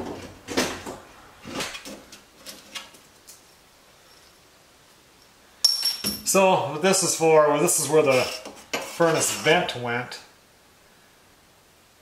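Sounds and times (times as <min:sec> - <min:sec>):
sharp metallic clink: 0:05.2 - 0:06.3.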